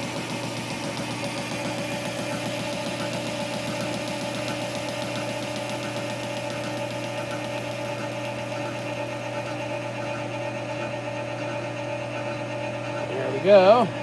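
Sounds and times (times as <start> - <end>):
metal lathe humming and whining: 0.0 - 14.0
rapid even ticking of cutting tool: 0.0 - 14.0.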